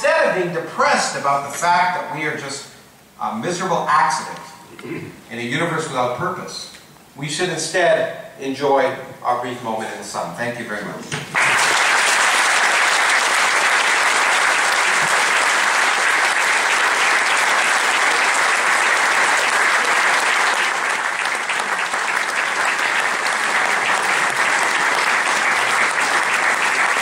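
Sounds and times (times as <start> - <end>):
audience applauding: 11.3 - 27.0.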